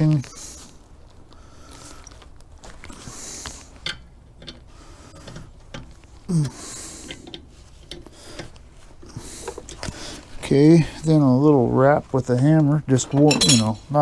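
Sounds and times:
glove and clothing rustle: 0.0 - 3.9, 7.4 - 14.0
small metallic clicks and scrapes: 1.8 - 11.1.

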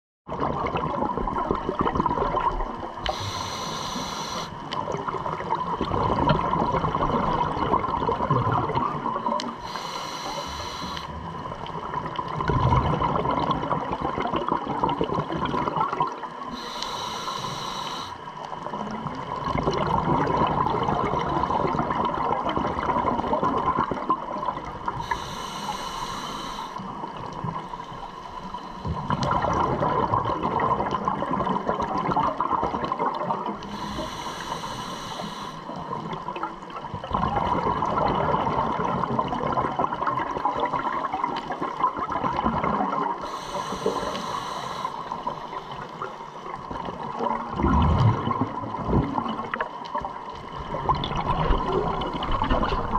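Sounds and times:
bubbling exhale: 0.3 - 11.3, 19.4 - 36.4, 37.0 - 49.7
regulator hissing inhales: 3.0 - 4.7, 9.6 - 11.2, 16.5 - 18.2, 25.0 - 26.9, 33.7 - 35.9, 43.2 - 46.2.

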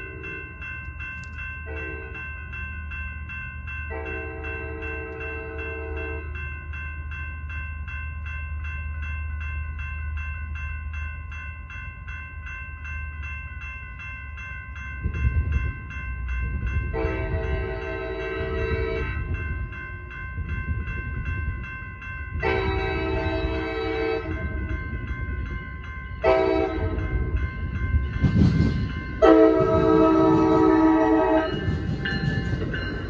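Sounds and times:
crossing bell ringing: 0.0 - 33.0
train rumbling: 0.0 - 33.0
train horn: 3.9 - 6.4, 16.9 - 19.2, 22.4 - 24.6, 26.2 - 27.1, 29.2 - 31.6.

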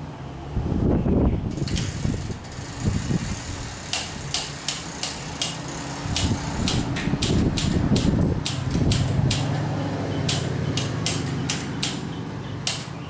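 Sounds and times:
ceiling fans humming: 0.0 - 13.0
sharp clicks: 3.9 - 9.6, 10.2 - 13.0.

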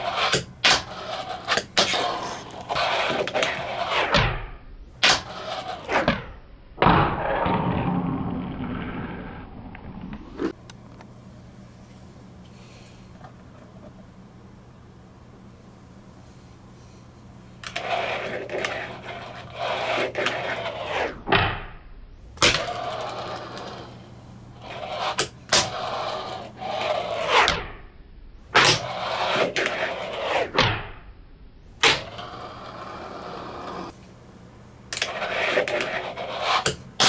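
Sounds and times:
fingerboard wheels rolling: 0.0 - 4.2, 5.0 - 6.2, 6.8 - 10.6, 17.6 - 21.2, 22.4 - 27.5, 28.6 - 30.6, 31.8 - 34.0, 34.9 - 37.0.

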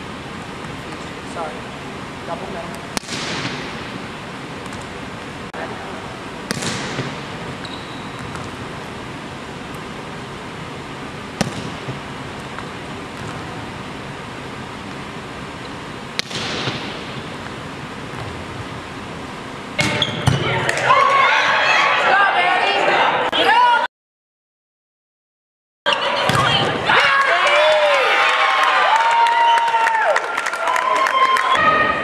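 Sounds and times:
volleyball being struck hard: 2.9 - 3.9, 6.4 - 8.6, 11.4 - 13.5, 16.2 - 17.3, 19.8 - 20.9.

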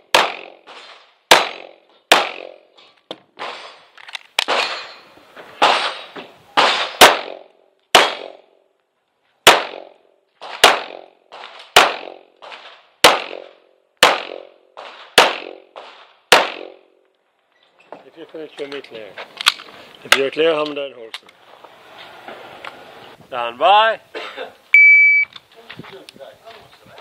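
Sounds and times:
pistol shots with echo: 0.0 - 0.7, 1.3 - 2.7, 5.6 - 8.5, 9.4 - 11.1, 11.7 - 12.3, 13.0 - 16.9.

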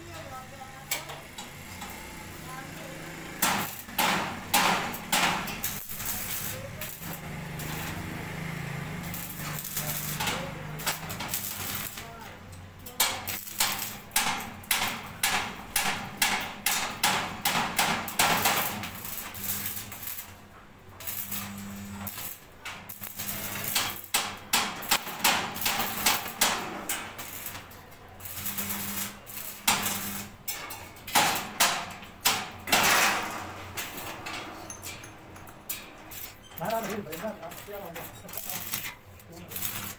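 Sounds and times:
welding arc crackling: 0.0 - 34.3, 35.7 - 39.9.

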